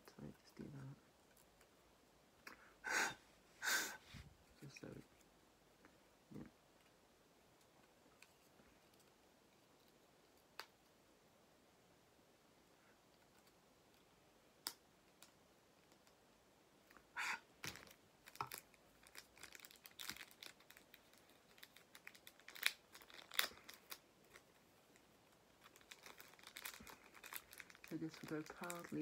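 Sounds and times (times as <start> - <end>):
plastic wrapping crinkling: 17.6 - 29.0.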